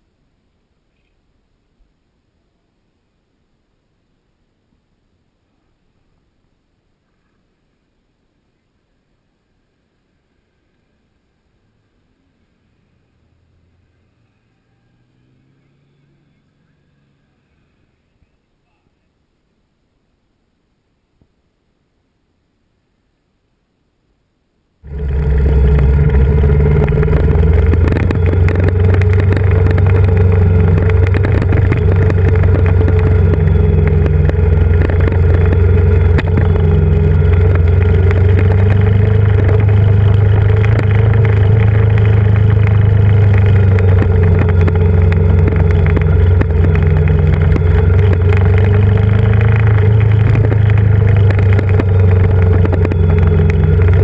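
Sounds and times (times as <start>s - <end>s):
motorcycle engine running: 24.8s - 54.0s.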